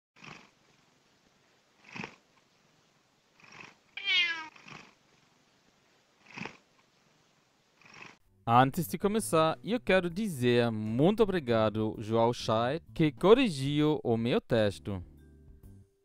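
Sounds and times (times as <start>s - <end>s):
cat meowing: 4.0s - 4.8s
soft breathy puffs: 4.6s - 8.2s.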